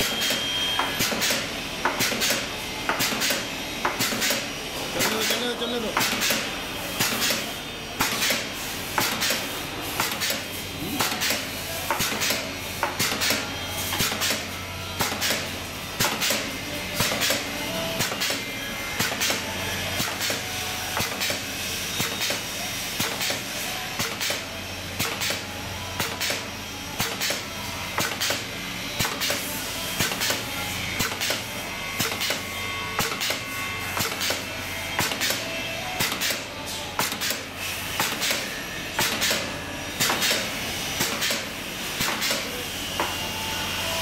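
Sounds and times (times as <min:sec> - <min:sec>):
cutting machine clacking: 0:00.0 - 0:17.4.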